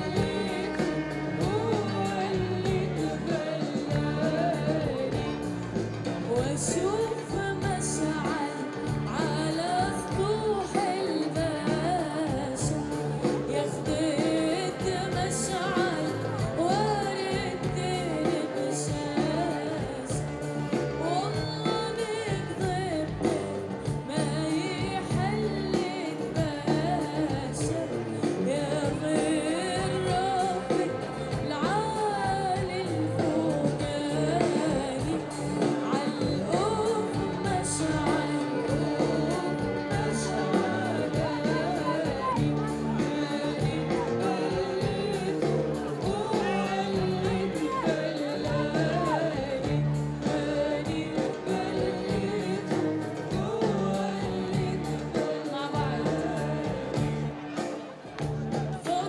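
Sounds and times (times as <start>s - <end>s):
band playing: 0.0s - 59.0s
woman singing into a microphone: 0.0s - 59.0s.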